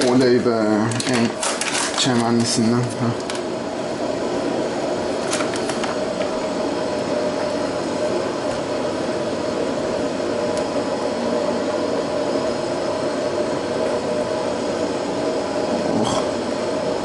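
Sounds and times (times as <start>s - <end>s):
clatter of food on counter: 0.9s - 2.5s.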